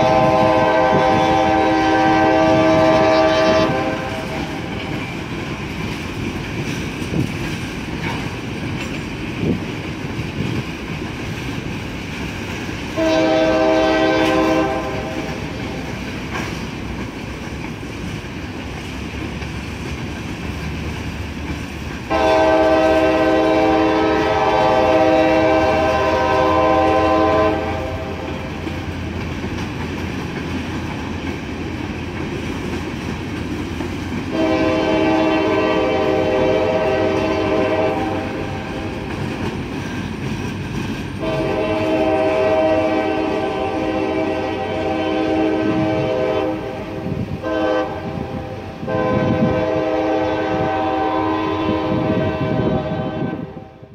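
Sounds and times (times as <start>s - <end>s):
train air horn blasts: 0.0s - 5.1s, 12.8s - 16.1s, 22.1s - 29.0s, 34.2s - 39.2s, 41.2s - 53.9s
wheels clattering over rail joints: 4.6s - 13.0s, 28.3s - 34.4s, 38.6s - 41.4s.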